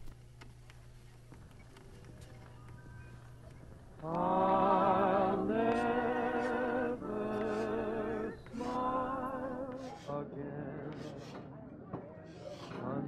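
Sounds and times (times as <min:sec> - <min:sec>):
person singing with vibrato: 0:04.0 - 0:11.4.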